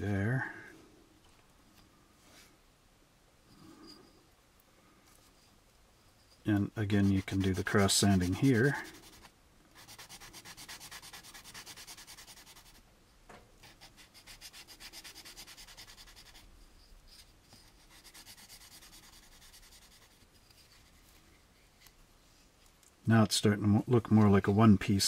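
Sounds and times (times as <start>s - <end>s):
sandpaper rubbing on plastic: 6.8s - 12.8s, 13.6s - 16.5s, 17.6s - 20.9s.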